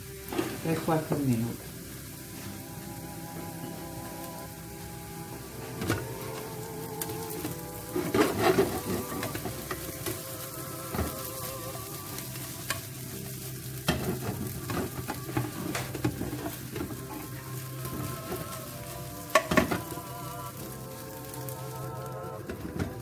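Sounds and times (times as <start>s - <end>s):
bread frying in oil sizzling: 0.0s - 23.0s
spatula clicking and scraping pan: 7.0s - 11.1s, 12.2s - 18.5s, 19.2s - 19.9s.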